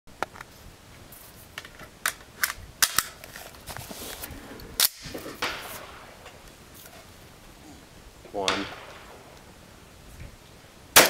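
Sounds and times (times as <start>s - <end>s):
rifle gunfire cracks: 4.8s - 6.0s, 8.4s - 9.3s.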